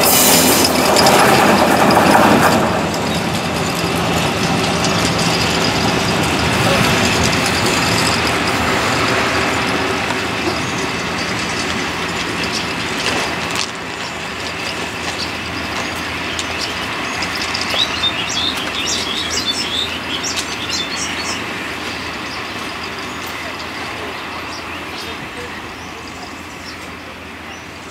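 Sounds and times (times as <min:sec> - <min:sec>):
train coaches rolling on track: 0:00.0 - 0:27.9
birds chirping: 0:04.1 - 0:27.9.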